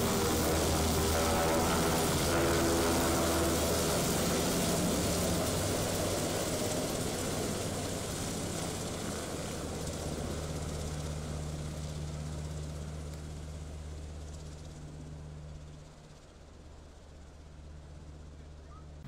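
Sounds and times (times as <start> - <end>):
helicopter flying overhead: 0.0 - 19.0.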